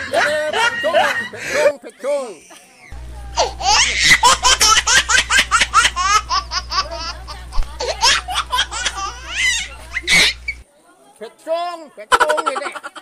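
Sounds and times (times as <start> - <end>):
steady low hum: 2.9 - 10.6.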